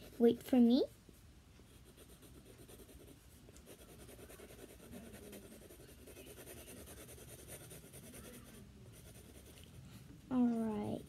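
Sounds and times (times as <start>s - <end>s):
pencil scratching on paper: 0.0s - 0.6s, 1.7s - 9.8s.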